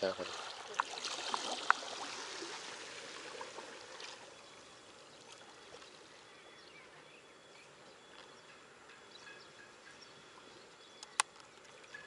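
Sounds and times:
seawater lapping against rocks: 0.0 - 6.1.

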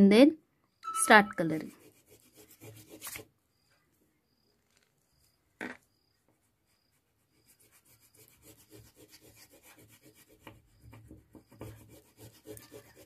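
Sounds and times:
crayon scratching on paper: 1.3 - 3.3, 6.4 - 13.0.

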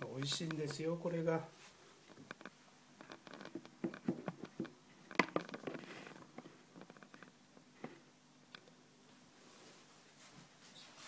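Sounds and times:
plastic lid clicks and rustles: 2.2 - 7.3.

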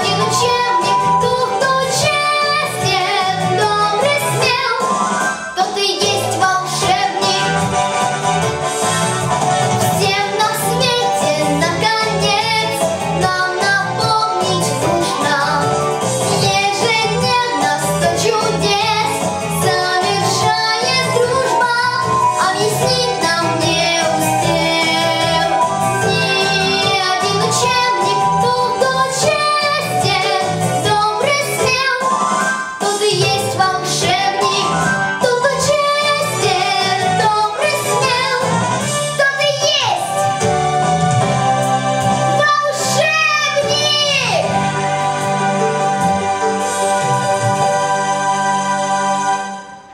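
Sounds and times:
girl singing: 0.0 - 4.9, 5.6 - 7.6, 9.9 - 32.1, 32.8 - 40.2, 42.3 - 44.5
instrumental music with steady beat: 0.0 - 39.3, 40.1 - 49.9.

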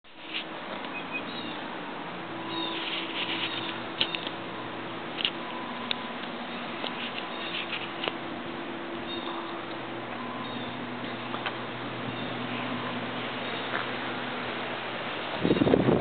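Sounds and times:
puppies squeaking and yipping: 7.0 - 8.0.

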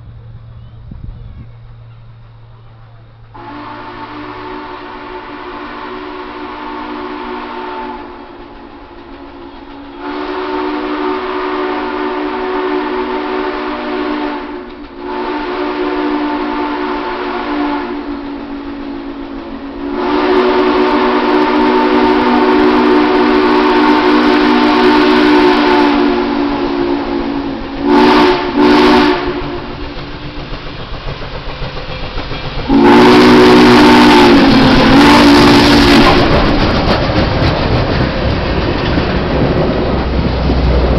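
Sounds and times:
steam locomotive exhaust rushing: 0.0 - 40.9
steam whistle blasts: 3.4 - 8.4, 9.2 - 29.7, 32.6 - 36.3.

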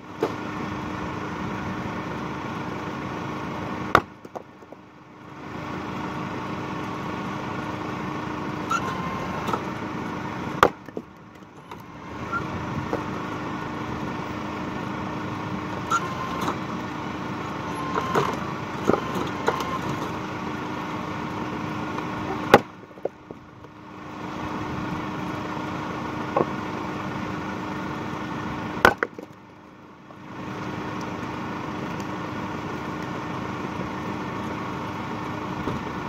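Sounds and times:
axe splitting wood: 3.9 - 4.8, 10.5 - 11.1, 18.0 - 20.0, 22.3 - 23.2, 28.8 - 29.4.

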